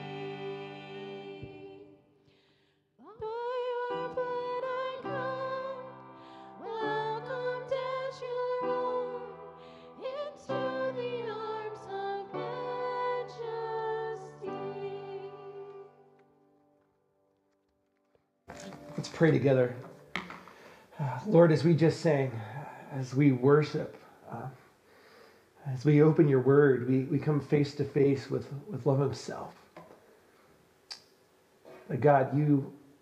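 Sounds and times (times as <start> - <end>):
woman singing worship song: 0.0 - 2.3, 3.0 - 16.2
piano chords: 0.0 - 2.5, 3.1 - 16.8, 18.5 - 21.9.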